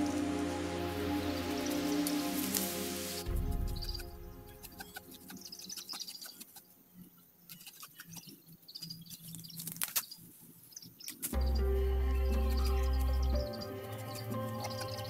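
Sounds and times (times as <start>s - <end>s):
background music: 0.0s - 5.9s, 11.4s - 15.0s
faint bird chirps: 3.2s - 15.0s.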